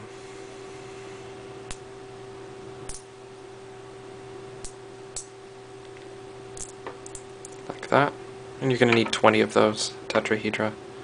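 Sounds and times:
steady background hum: 0.0s - 11.0s
magnet spheres clicking together: 6.6s - 7.7s.

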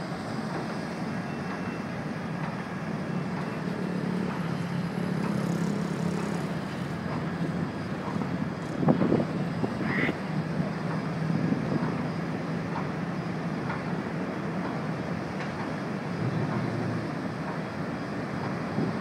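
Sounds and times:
ferry engines humming: 0.0s - 19.0s
wind noise on microphone: 8.5s - 9.9s.

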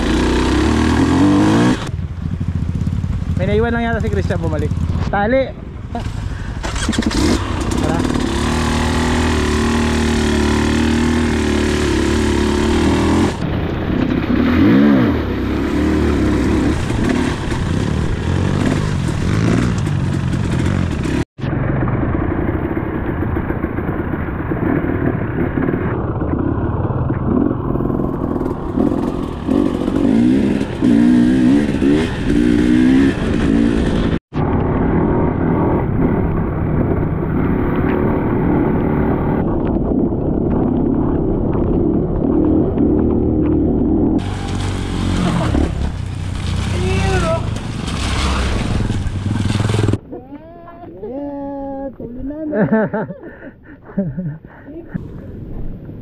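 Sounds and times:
dirt bike engine revving: 0.0s - 5.1s, 6.0s - 21.3s, 25.1s - 39.4s, 41.9s - 50.0s.

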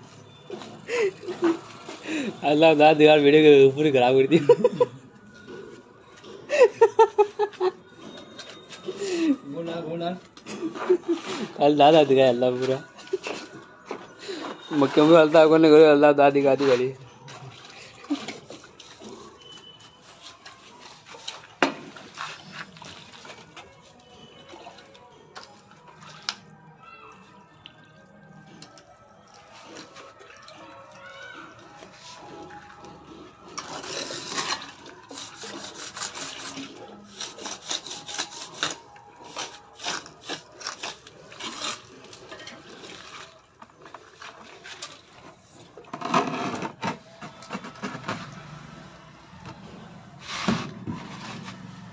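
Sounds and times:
trowel scraping wet mortar: 16.3s - 23.6s, 33.2s - 48.1s
trowel scraping mortar: 33.5s - 43.3s.

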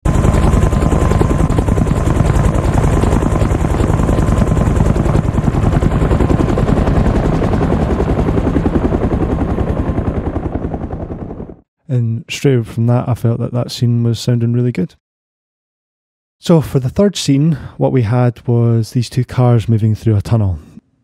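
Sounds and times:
helicopter rotor chop: 0.0s - 11.6s.

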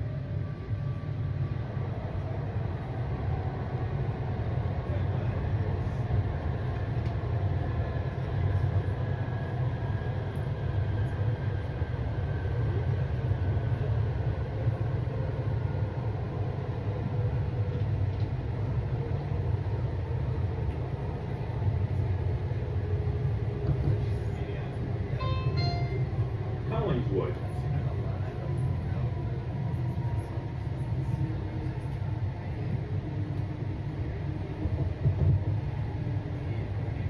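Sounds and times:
train wheels rumbling on track: 0.0s - 37.0s.

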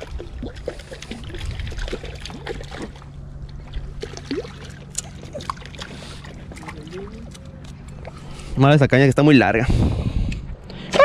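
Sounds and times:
water sloshing among rocks: 0.0s - 8.4s
steady low hum: 0.0s - 11.0s.

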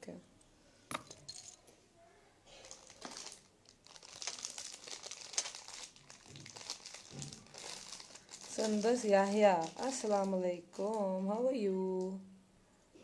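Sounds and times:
crinkly wrapping rustling: 2.5s - 11.4s.

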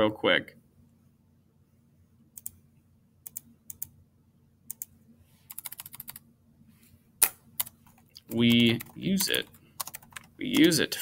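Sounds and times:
typing on a keyboard: 5.5s - 6.2s, 7.6s - 10.8s.

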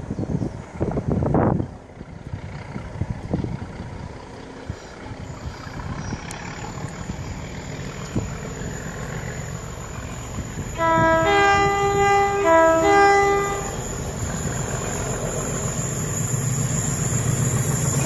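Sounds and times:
diesel locomotive rumble: 0.0s - 18.0s
two-tone locomotive horn: 10.6s - 14.4s.

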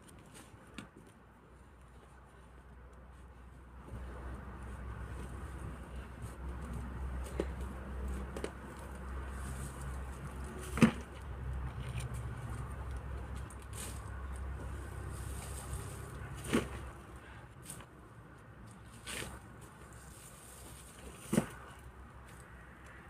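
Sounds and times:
shovel scraping soil: 18.8s - 21.7s.

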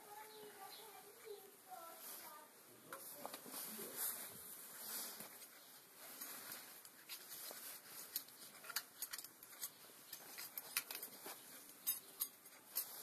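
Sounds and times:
small metallic clicks: 8.1s - 13.0s.

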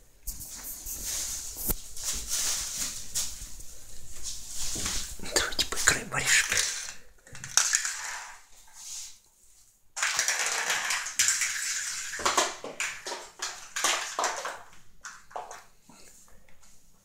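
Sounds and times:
walnut rolling on tiled floor: 6.2s - 8.8s, 10.0s - 15.7s.

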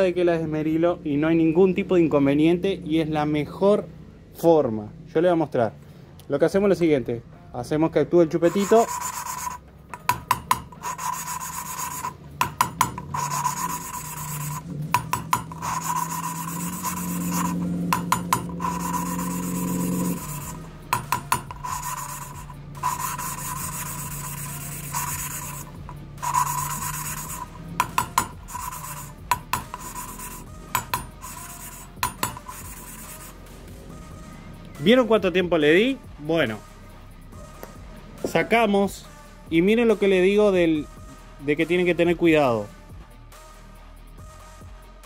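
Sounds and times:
valve lapping gritty rasping: 8.4s - 33.4s.

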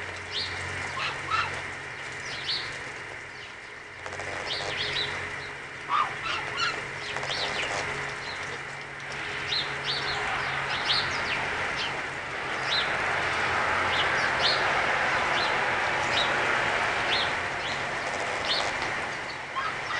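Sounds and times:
geese pecking feed on bricks: 4.0s - 9.2s, 17.7s - 19.9s.

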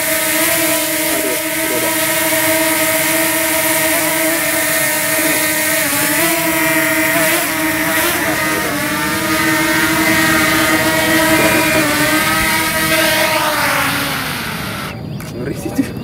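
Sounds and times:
drone propellers whining: 0.0s - 15.2s.

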